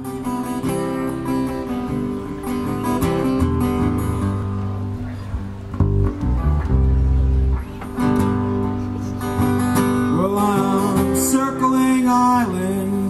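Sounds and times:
strummed acoustic guitar: 0:00.0 - 0:13.0.

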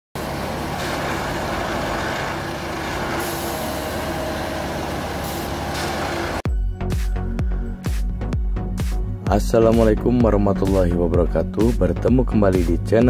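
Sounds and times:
diesel drone: 0:00.2 - 0:06.4
machinery clatter: 0:00.2 - 0:06.4.

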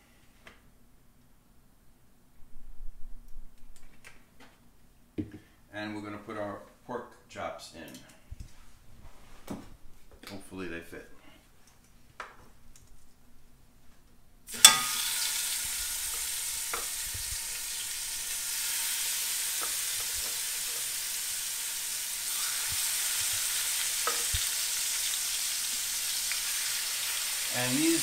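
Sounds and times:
meat sizzling in a skillet: 0:14.5 - 0:28.0.

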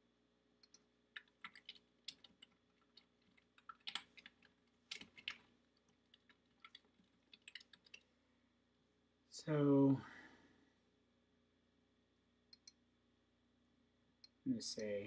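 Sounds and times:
faint keyboard typing: 0:00.6 - 0:08.1.

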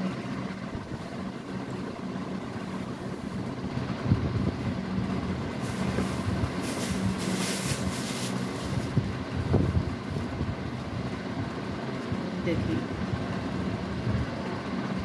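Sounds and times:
steady low hum: 0:00.0 - 0:15.0
cloth rustling: 0:05.6 - 0:09.0.

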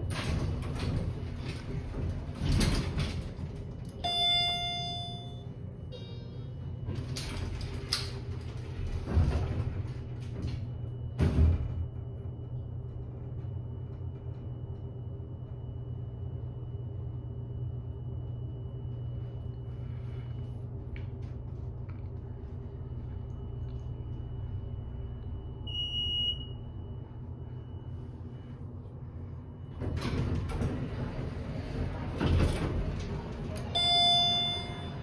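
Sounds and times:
elevator doors sliding open: 0:00.0 - 0:15.6, 0:29.0 - 0:35.0
elevator hum with faint whine: 0:00.0 - 0:35.0
elevator chime: 0:03.9 - 0:06.9, 0:25.6 - 0:26.8, 0:33.6 - 0:35.0.

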